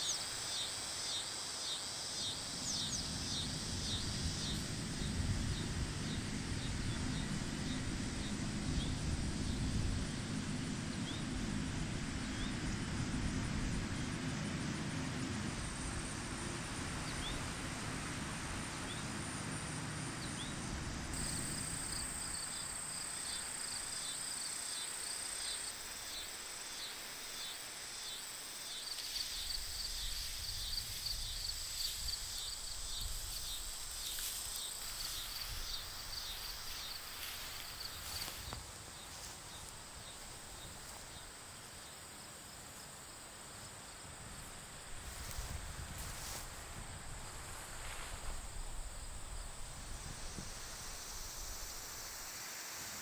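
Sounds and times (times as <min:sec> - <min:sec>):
insects buzzing: 0:00.0 - 0:53.0
rapid pulsing insect chirps: 0:00.0 - 0:53.0.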